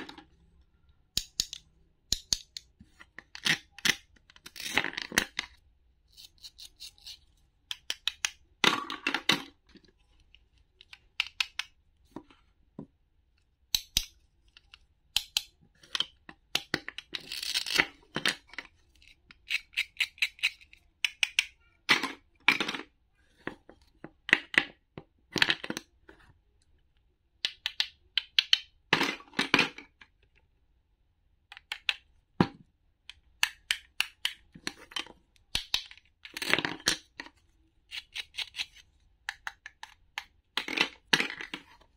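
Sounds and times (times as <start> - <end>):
plastic pieces clicking and knocking: 1.1 - 5.6, 6.2 - 10.1, 10.7 - 11.8, 13.6 - 23.5, 27.4 - 30.1, 31.5 - 41.8.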